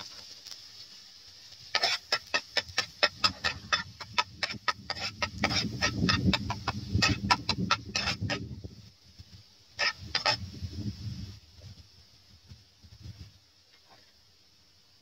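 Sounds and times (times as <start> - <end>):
metal spatula scraping a pan: 1.8 - 8.4.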